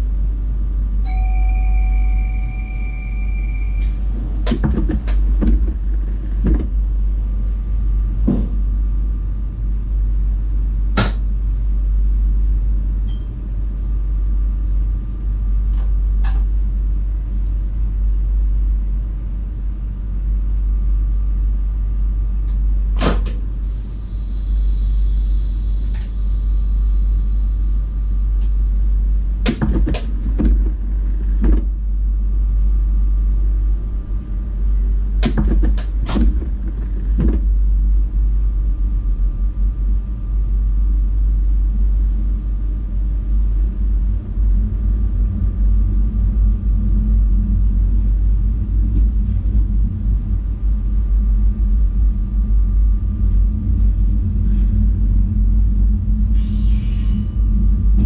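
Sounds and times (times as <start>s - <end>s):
train cab rumble and hum: 0.0s - 58.0s
sharp clicks and knocks: 3.8s - 6.8s, 29.4s - 31.7s, 35.2s - 37.5s.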